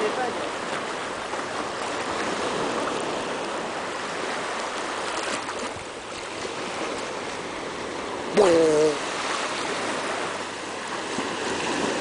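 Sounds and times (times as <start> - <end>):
sea water lapping: 0.0 - 12.0.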